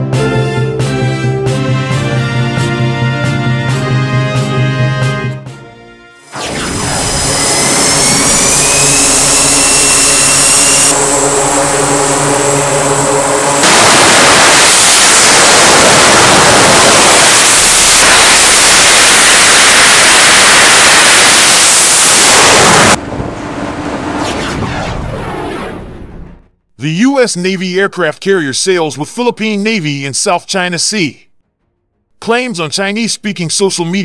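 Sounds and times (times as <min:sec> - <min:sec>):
low hum: 0:06.3 - 0:26.8
jet engines roaring: 0:06.4 - 0:26.4.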